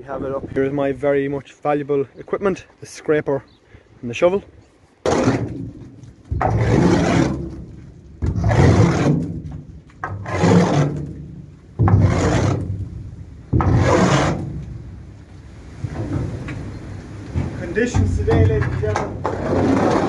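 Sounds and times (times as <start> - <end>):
tool scraping trailer floor: 5.0 - 14.9, 17.4 - 20.0.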